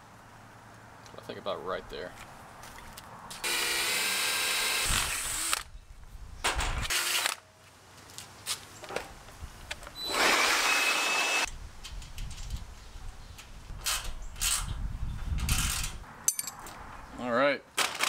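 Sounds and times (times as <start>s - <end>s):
cordless drill boring into steel: 3.4s - 5.6s, 10.0s - 11.5s.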